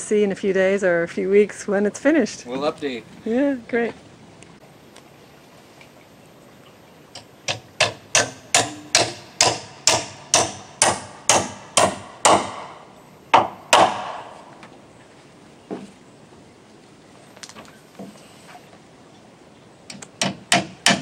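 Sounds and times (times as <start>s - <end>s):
hammer striking nail into wood: 7.5s - 14.3s, 20.2s - 21.0s.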